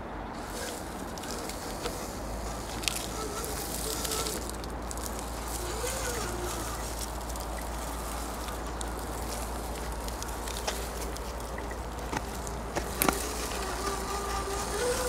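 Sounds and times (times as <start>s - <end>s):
electric motor whining: 0.4s - 15.0s.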